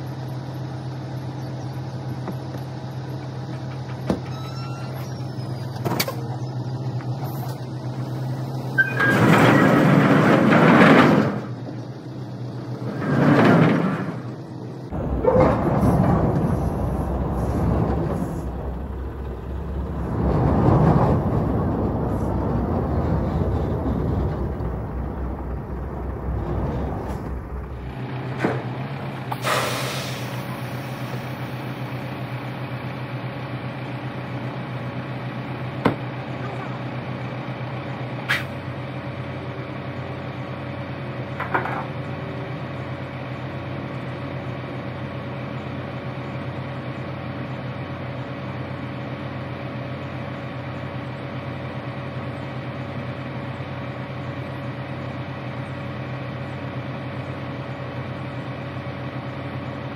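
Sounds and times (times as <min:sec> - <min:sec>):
diesel truck engine idling: 0:00.0 - 0:09.1, 0:11.3 - 0:13.0, 0:14.1 - 0:59.9
air brakes hissing: 0:15.2 - 0:19.2, 0:29.3 - 0:31.6, 0:38.2 - 0:38.6.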